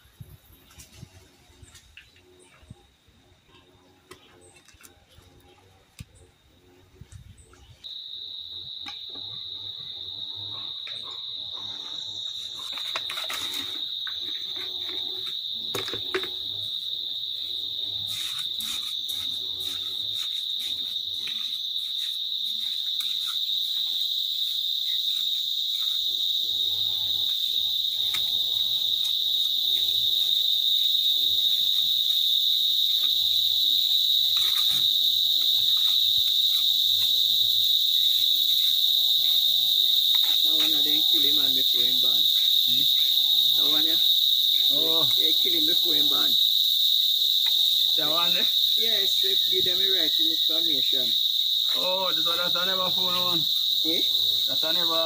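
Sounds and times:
insect high-pitched drone: 0.0 - 55.0
trowel scraping wet mortar: 18.0 - 24.6.

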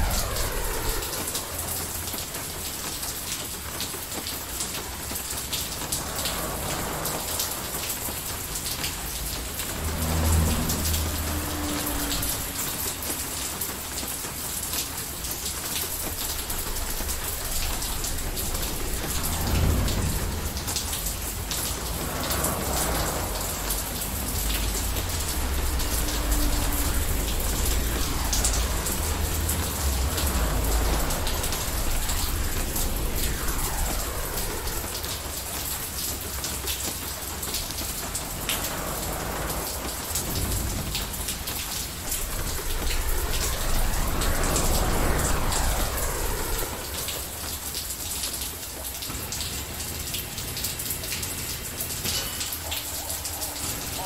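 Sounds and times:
distant thunder rumbles: 0.0 - 3.3, 5.7 - 14.0, 15.2 - 36.5, 37.4 - 47.8
steady rain: 0.0 - 54.0.

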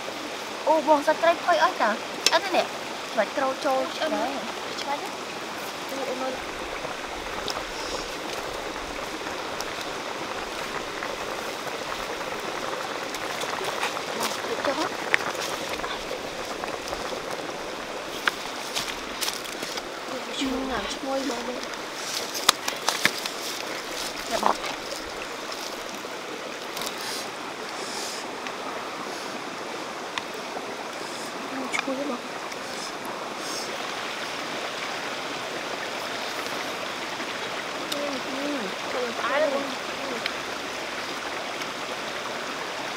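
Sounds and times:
stream rushing: 0.0 - 42.9
soup boiling hard in a wok: 6.4 - 20.0.

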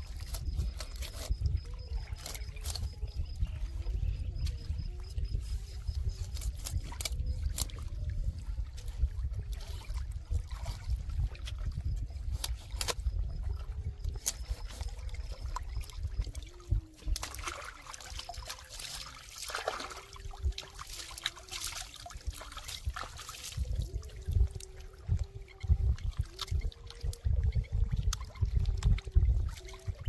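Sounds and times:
steady low rumble: 0.0 - 17.4
water trickling and splashing: 0.0 - 30.0.

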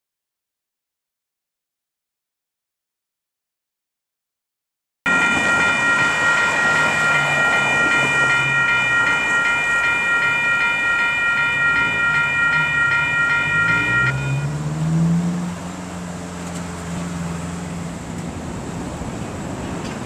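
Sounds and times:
crossing warning bell ringing: 5.1 - 15.3
low engine hum: 7.0 - 20.0.

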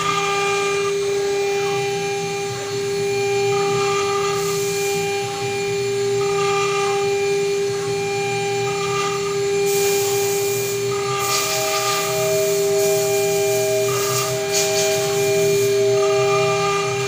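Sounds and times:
cnc spindle whine: 0.0 - 17.0
high tone: 9.8 - 17.0.

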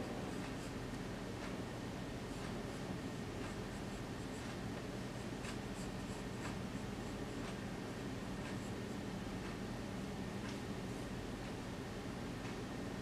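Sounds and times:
steady low hum: 0.0 - 13.0
pencil scratching on paper: 3.5 - 9.0.

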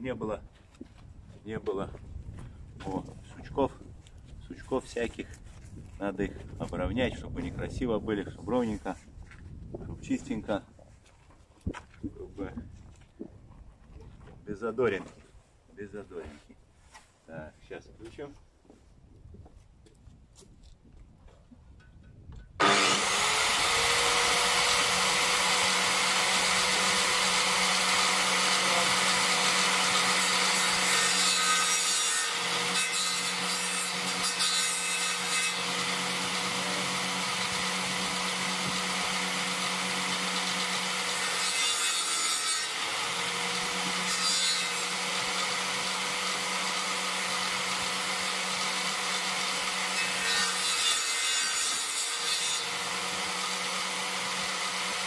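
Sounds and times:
power saw whining: 22.6 - 55.0
saw cutting wood: 22.6 - 55.0.

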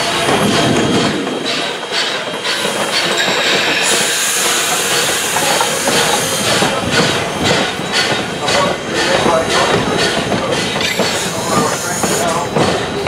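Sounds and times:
train wheels clacking over rail joints: 0.0 - 13.0.

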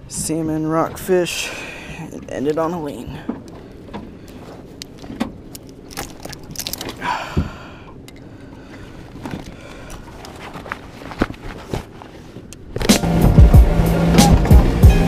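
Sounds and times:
engine running steadily: 0.0 - 15.0.

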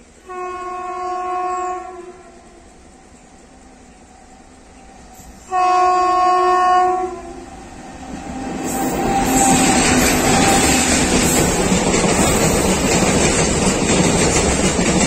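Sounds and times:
freight train running over rails: 0.0 - 15.0
locomotive horn blast: 0.2 - 2.6, 5.4 - 10.9.

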